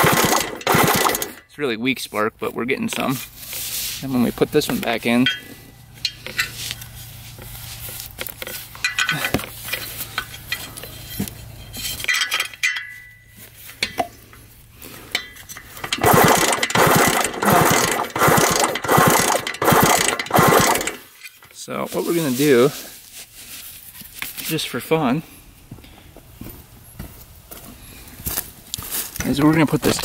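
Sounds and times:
loud ratcheting clatter: 0:00.0 - 0:01.5, 0:15.1 - 0:21.4.

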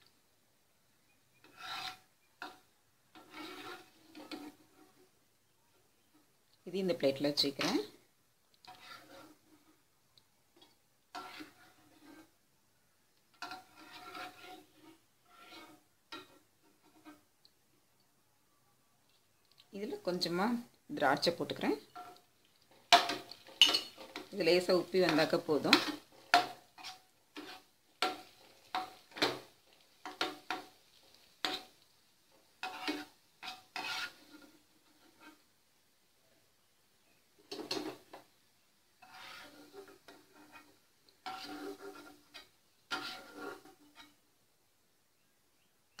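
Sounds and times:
metal skimmer scraping frying pan: 0:01.3 - 0:05.1, 0:06.9 - 0:08.0, 0:08.6 - 0:09.8, 0:10.6 - 0:12.4, 0:13.3 - 0:17.3, 0:19.9 - 0:35.5, 0:37.5 - 0:38.3, 0:39.0 - 0:44.2.

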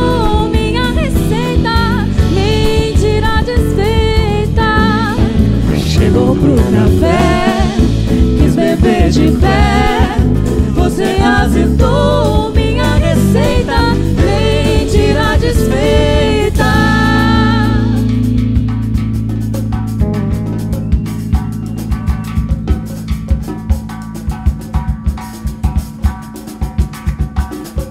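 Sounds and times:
drum kit: 0:00.0 - 0:27.9
man and woman singing: 0:04.0 - 0:18.0.

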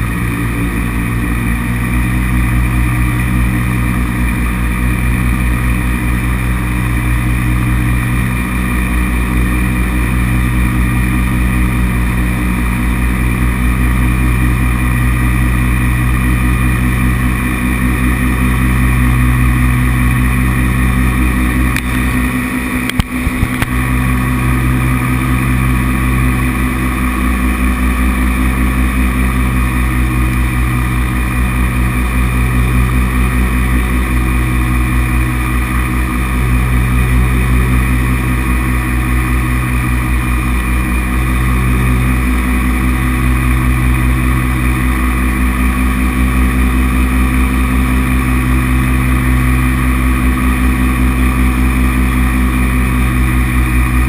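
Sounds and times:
paramotor engine and propeller: 0:00.0 - 0:54.0
sharp clicks: 0:22.8 - 0:23.8.

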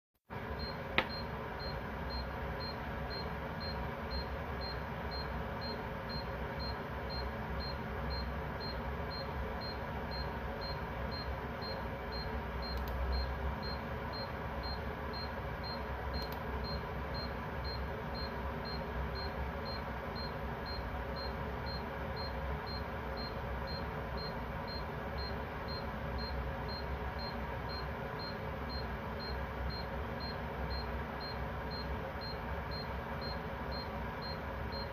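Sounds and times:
electronic alarm beeping: 0:00.6 - 0:34.9.

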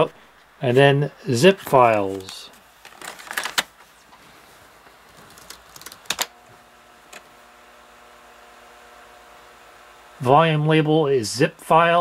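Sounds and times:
floppy drive humming: 0:00.0 - 0:12.0
keyboard typing: 0:05.2 - 0:06.3.

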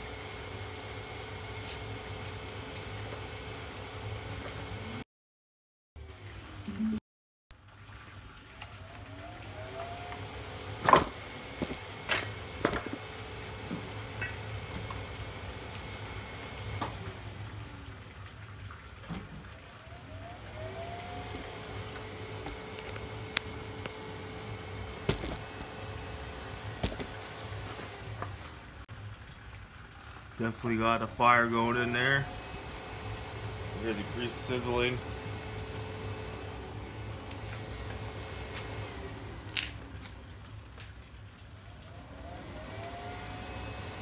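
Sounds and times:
grease sizzling with pops: 0:07.5 - 0:31.2, 0:32.6 - 0:43.8.

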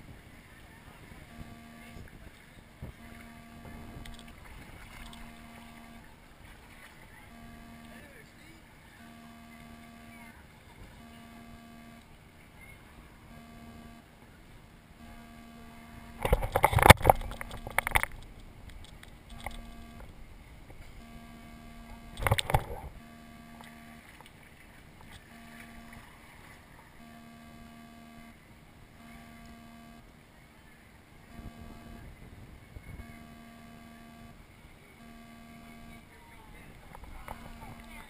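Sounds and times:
faint steady hum: 0:00.0 - 0:38.0
water splashing against camera: 0:00.1 - 0:12.9, 0:15.0 - 0:27.8.

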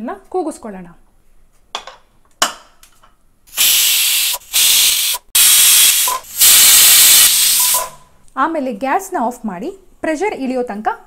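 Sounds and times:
pressure cooker steam whistles: 0:03.5 - 0:08.1.

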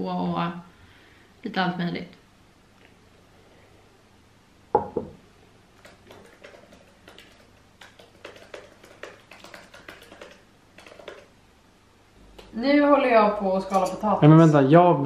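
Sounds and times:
laptop keyboard typing: 0:05.8 - 0:11.3.

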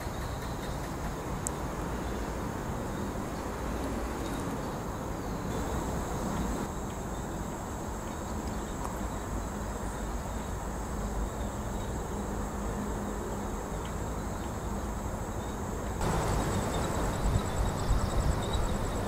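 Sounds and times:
insects chirring: 0:00.0 - 0:19.0.

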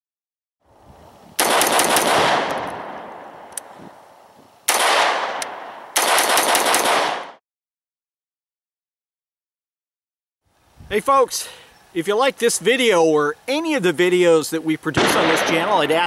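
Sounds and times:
rifle firing rapid shots: 0:01.4 - 0:03.0, 0:04.7 - 0:07.4, 0:15.0 - 0:15.9.

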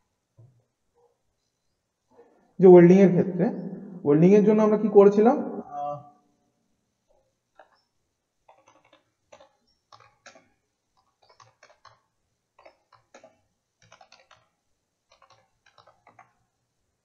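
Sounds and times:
computer keyboard typing: 0:07.5 - 0:07.8, 0:08.4 - 0:16.5.

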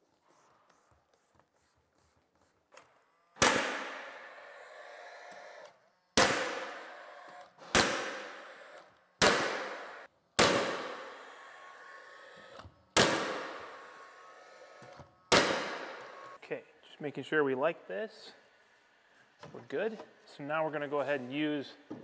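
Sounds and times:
nailer shots into wood: 0:03.4 - 0:04.2, 0:06.2 - 0:06.8, 0:07.6 - 0:08.4, 0:09.2 - 0:11.0, 0:13.0 - 0:13.6, 0:15.3 - 0:16.0.

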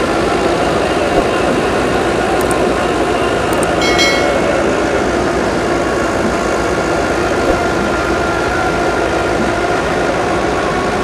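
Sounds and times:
threshing drum whirring: 0:00.0 - 0:11.0
high ringing note: 0:03.8 - 0:04.8.

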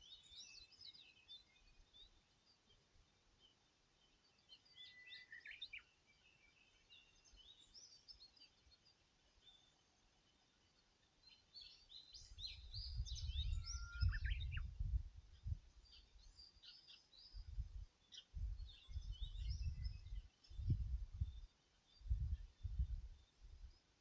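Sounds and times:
small birds chirping: 0:00.0 - 0:24.0
wind buffeting microphone: 0:12.4 - 0:16.0, 0:17.4 - 0:23.6.

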